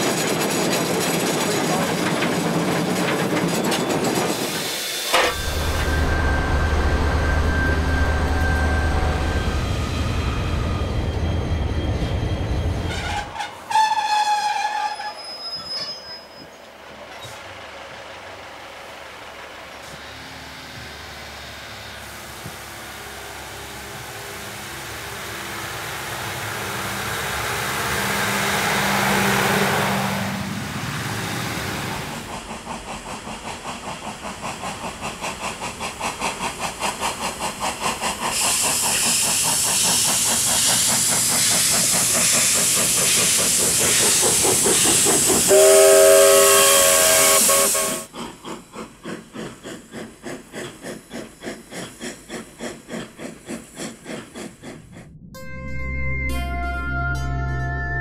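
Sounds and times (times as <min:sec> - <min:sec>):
hissing steam: 0:00.0 - 0:10.8, 0:18.5 - 0:54.9
steam locomotive chuffing: 0:00.0 - 0:16.0, 0:16.9 - 0:55.3
train rumble: 0:00.0 - 0:55.8
chime whistle: 0:05.2 - 0:12.9, 0:55.4 - 0:58.0.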